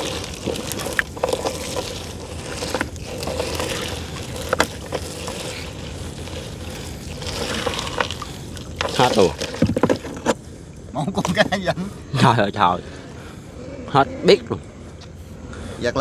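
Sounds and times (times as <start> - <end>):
water noise: 0.0 - 15.8
small boat engine humming: 0.0 - 16.0.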